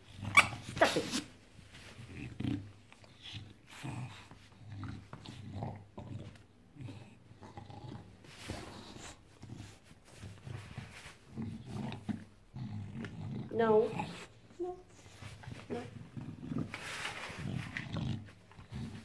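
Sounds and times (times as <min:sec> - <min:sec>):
dog grunting and growling: 0:11.3 - 0:14.4, 0:15.6 - 0:19.0.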